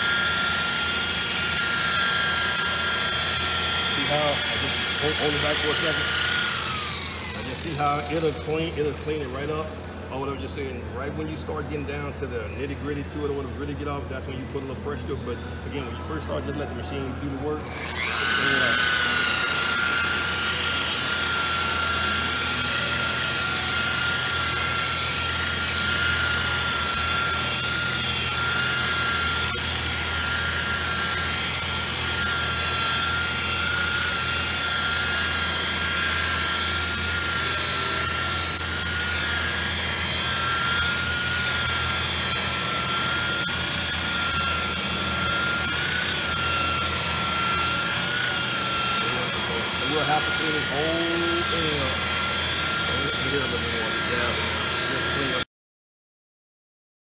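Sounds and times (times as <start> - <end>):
electric polisher motor whine: 0.0 - 55.5.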